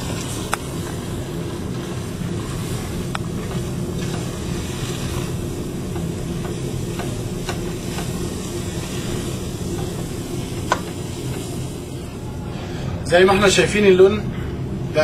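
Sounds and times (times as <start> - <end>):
wooden spoon stirring in saucepan: 0.0 - 11.8
steady low rumble: 0.0 - 15.0
spoon tapping against pan: 5.9 - 8.2.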